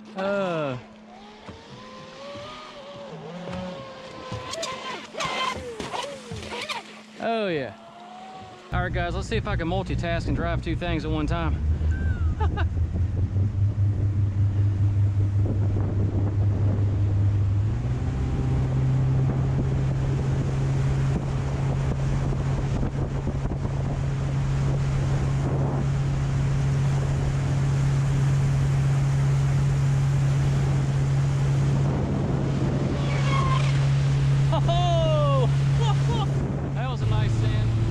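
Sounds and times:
speedboat engine droning: 0.0s - 37.9s
water rushing past hull: 0.0s - 37.9s
wind buffeting microphone: 8.6s - 37.9s.

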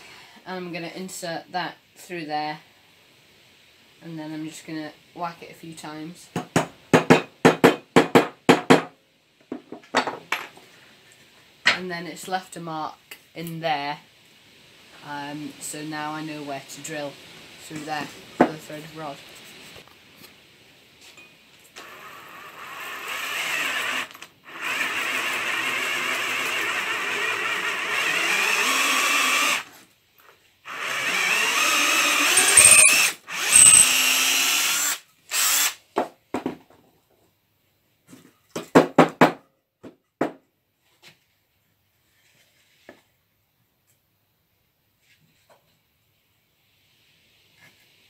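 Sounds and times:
cordless drill boring wood: 21.8s - 29.7s, 30.6s - 35.8s.

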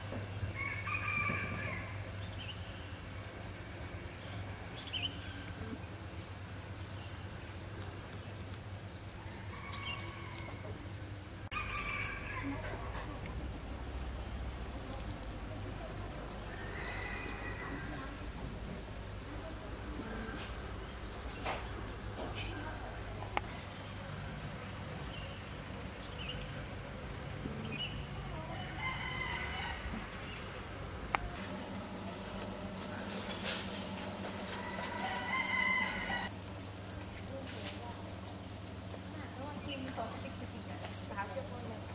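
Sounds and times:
high insect drone: 0.0s - 41.9s
rooster-like bird call: 0.5s - 2.2s, 9.3s - 10.8s, 11.5s - 13.2s, 16.4s - 18.3s, 28.3s - 30.4s, 31.4s - 36.3s.

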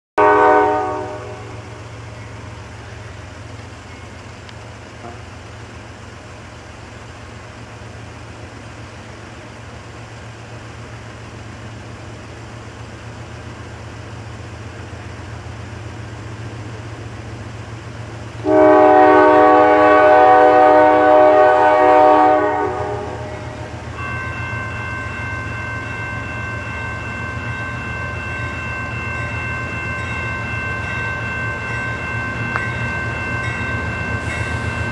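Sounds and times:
locomotive horn blast: 0.2s - 2.0s, 5.0s - 5.4s, 18.4s - 23.9s
freight train rumbling: 0.2s - 34.9s
bell ringing: 23.9s - 34.9s.

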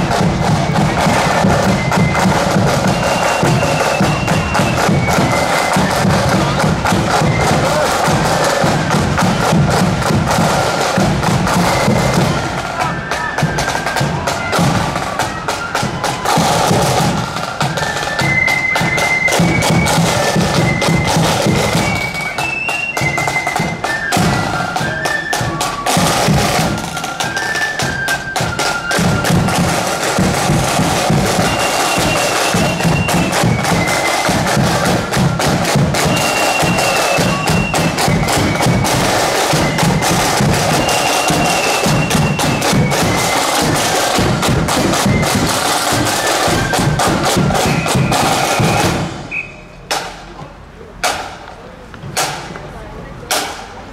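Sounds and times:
flutes playing melody: 0.0s - 49.8s
rapid snare drum strokes: 0.0s - 50.3s, 51.0s - 51.4s, 52.1s - 52.6s, 53.3s - 53.8s.

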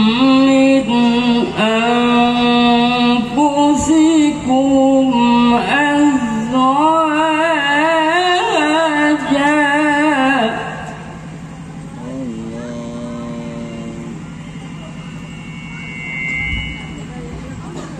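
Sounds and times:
man chanting into a microphone: 0.0s - 11.0s, 12.0s - 14.3s.

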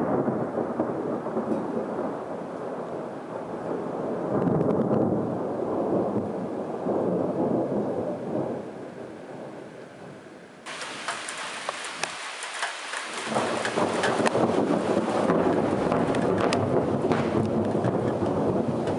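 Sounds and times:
rain pattering: 0.0s - 8.7s, 10.6s - 18.9s
thunder rumbling: 0.0s - 18.9s
raindrops clicking close by: 10.6s - 18.9s.

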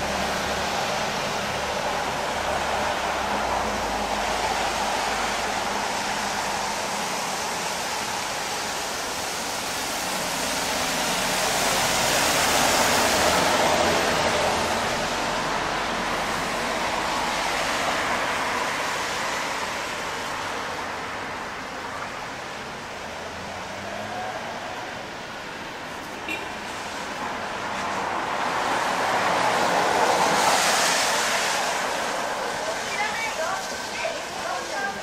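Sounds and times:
steady rain on street: 0.0s - 35.0s.

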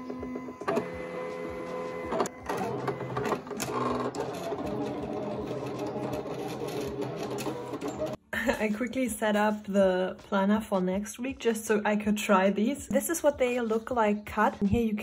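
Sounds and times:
cutting machine motors whirring: 0.0s - 8.2s.

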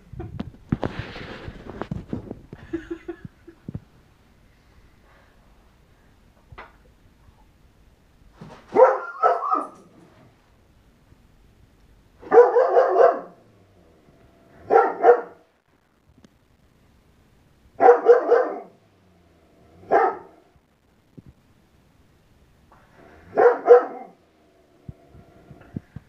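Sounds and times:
dog barking: 8.7s - 9.9s, 12.2s - 13.5s, 14.5s - 15.4s, 17.8s - 18.8s, 19.8s - 20.5s, 23.2s - 24.2s.

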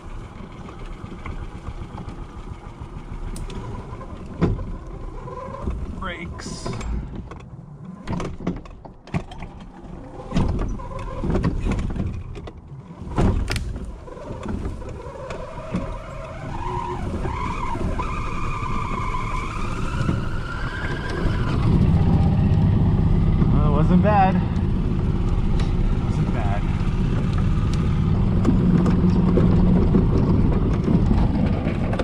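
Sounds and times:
golf cart knocking and rattling: 0.0s - 32.0s
high wavering squeal: 15.0s - 21.7s.

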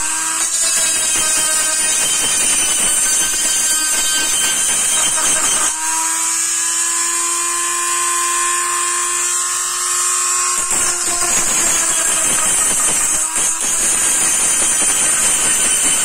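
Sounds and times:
rotary tool whining and sanding: 0.0s - 16.0s.

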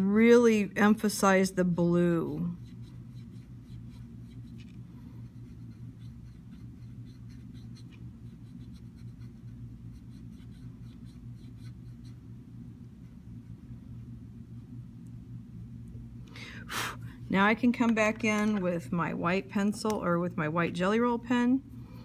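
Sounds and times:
steady low hum: 0.0s - 22.0s
pencil scratching on paper: 2.4s - 12.3s.

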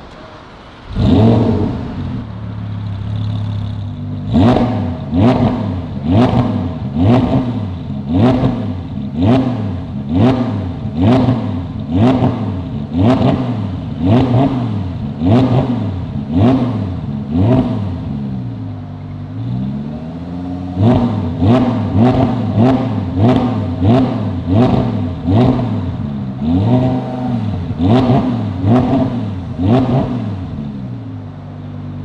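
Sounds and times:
car engine revving: 0.0s - 32.0s
exhaust cracks: 0.0s - 32.0s.

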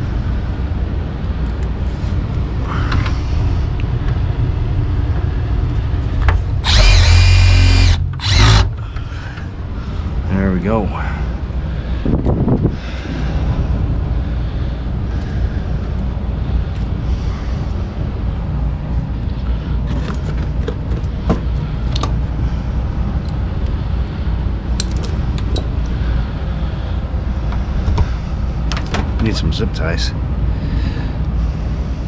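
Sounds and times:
steady low rumble: 0.0s - 32.0s
tools and wiring clicking: 6.6s - 8.8s, 24.8s - 25.9s.

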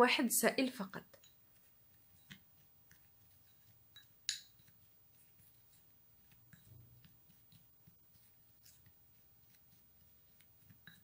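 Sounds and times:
plastic spoon stirring powder in glass: 1.0s - 11.0s
spoon tapping glass: 3.9s - 4.6s.

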